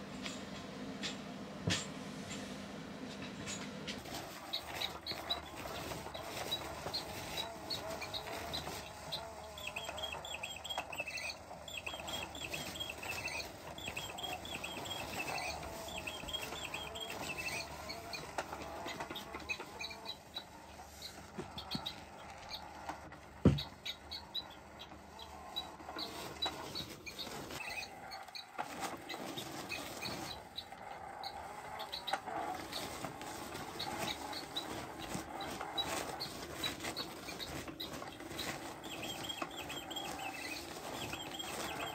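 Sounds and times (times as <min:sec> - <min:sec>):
wavering hum: 0:03.5 - 0:22.8
electronic toy chirps: 0:04.4 - 0:22.8, 0:37.2 - 0:41.9.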